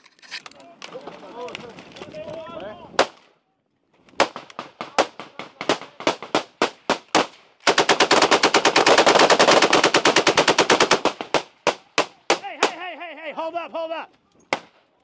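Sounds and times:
machine gun firing burst: 7.7 - 11.5.

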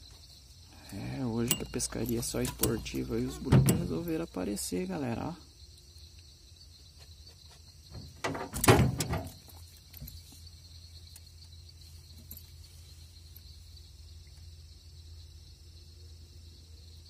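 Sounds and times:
night insects chirring: 0.0 - 17.0
clattering and rustling: 7.0 - 10.5.

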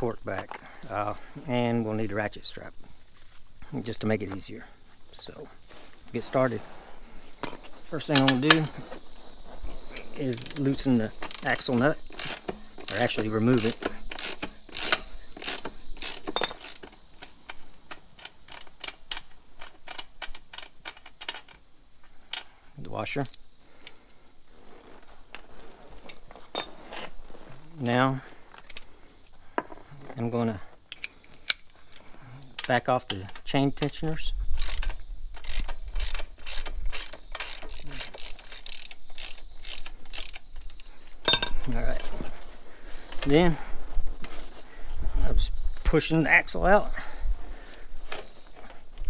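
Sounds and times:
hand ratchet clicking: 10.2 - 21.6, 32.9 - 40.9.

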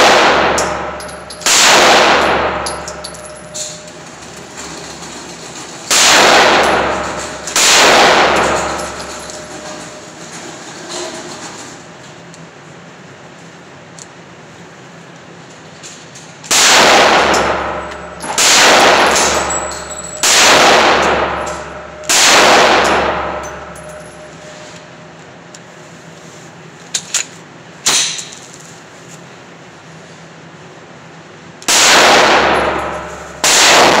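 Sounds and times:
gunshots echoing in a room: 0.0 - 3.9, 5.8 - 10.0, 16.5 - 24.5, 31.6 - 34.0.

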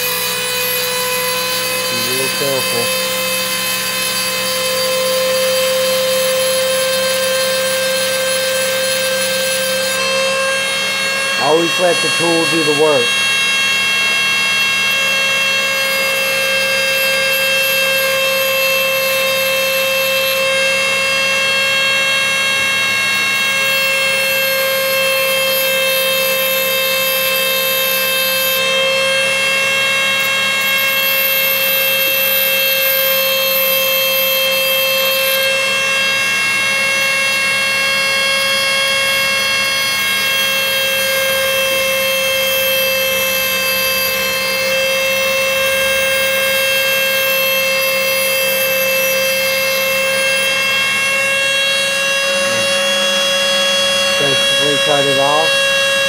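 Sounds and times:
cutting wheel grinding glass: 0.0 - 13.2, 52.0 - 56.0
rotary tool high whine: 0.0 - 56.0.

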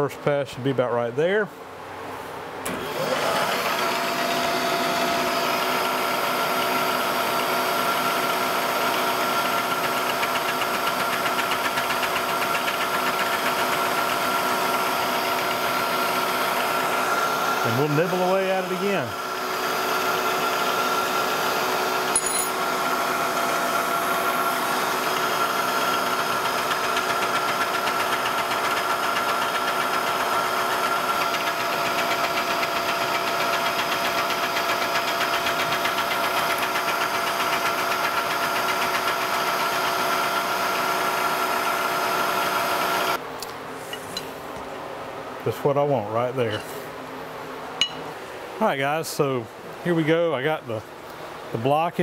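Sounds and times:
milling machine humming: 2.6 - 43.2
end mill cutting metal: 2.7 - 43.2.

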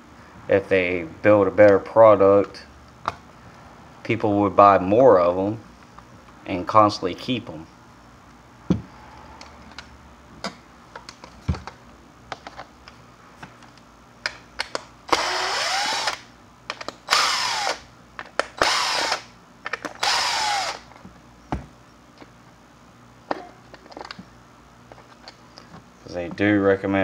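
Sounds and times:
cordless drill spinning: 15.1 - 16.2, 17.1 - 17.9, 18.6 - 19.3, 19.9 - 20.9
handling clicks and knocks: 23.3 - 26.5.

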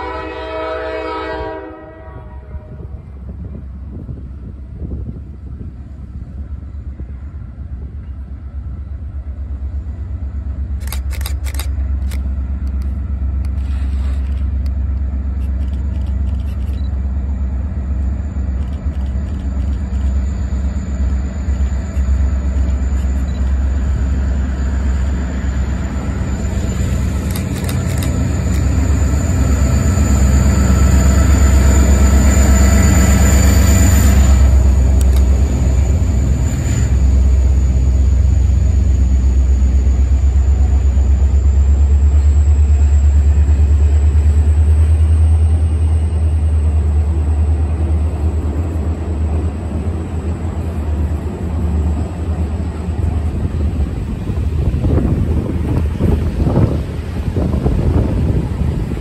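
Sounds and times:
diesel locomotive engine rumble: 0.0 - 59.0
high-pitched whine: 13.0 - 59.0.

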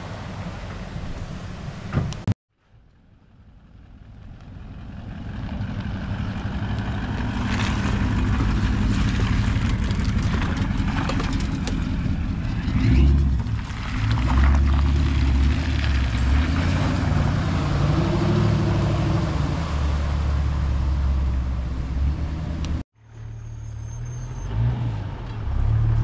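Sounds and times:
tyres crackling over dirt: 4.2 - 18.2.

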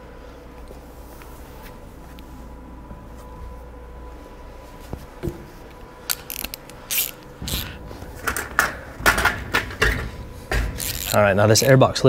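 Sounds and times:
socket ratchet clicking: 6.1 - 7.7, 10.8 - 11.7.

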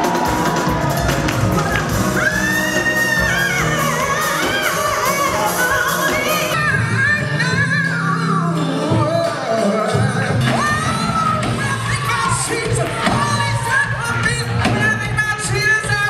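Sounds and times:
band accompaniment: 0.0 - 16.0
woman singing: 1.3 - 16.0
man singing: 7.4 - 16.0.

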